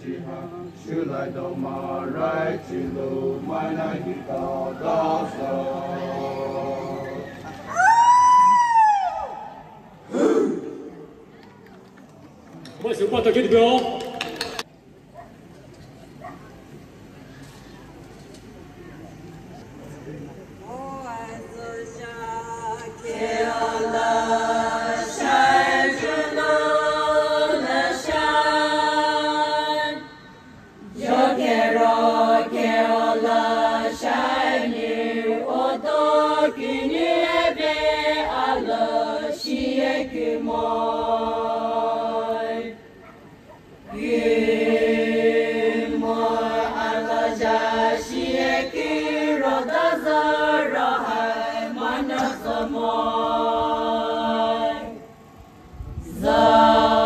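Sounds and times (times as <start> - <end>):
group chanting in unison: 0.0 - 7.5, 23.0 - 43.0, 43.8 - 55.1, 56.0 - 57.0.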